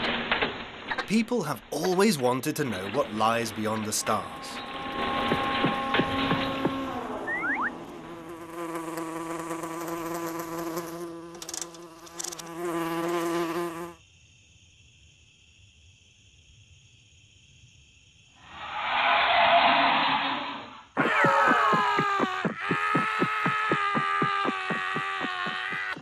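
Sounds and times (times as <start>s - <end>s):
loud noisy sound: 4.4s - 7.7s
cartoon fly buzzing: 5.3s - 14.0s, 20.5s - 26.0s.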